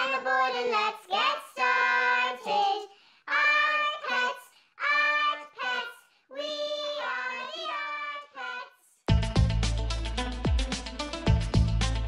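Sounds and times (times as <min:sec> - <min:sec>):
high voice singing unaccompanied: 0:00.0 - 0:09.0.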